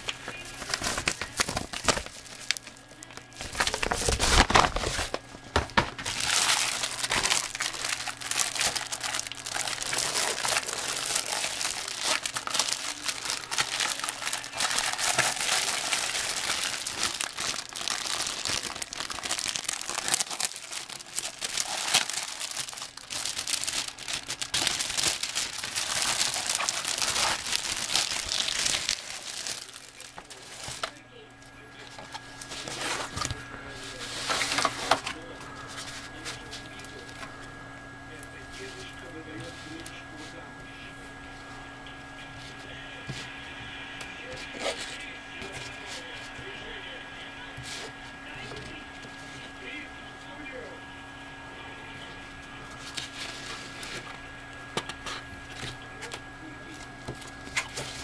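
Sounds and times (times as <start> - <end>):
plastic packaging crinkling: 0.0 - 31.0, 31.8 - 37.3.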